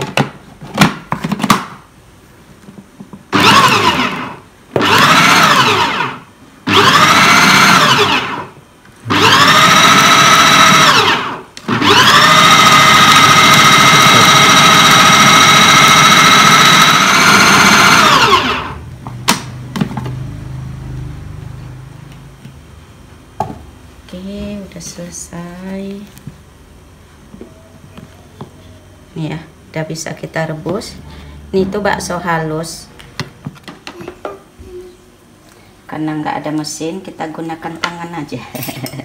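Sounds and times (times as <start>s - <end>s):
food processor motor whining: 3.3s - 20.4s.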